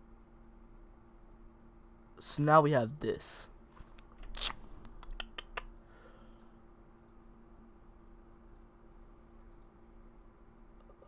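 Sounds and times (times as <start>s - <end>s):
low steady hum: 0.0s - 11.0s
keyboard and mouse clicks: 3.8s - 8.8s, 9.4s - 10.9s.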